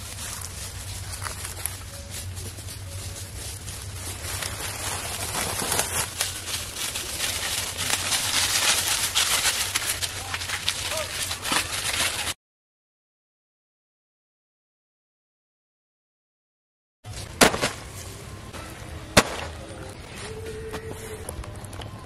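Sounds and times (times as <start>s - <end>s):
footsteps crunching on dry leaves: 0.0s - 12.4s.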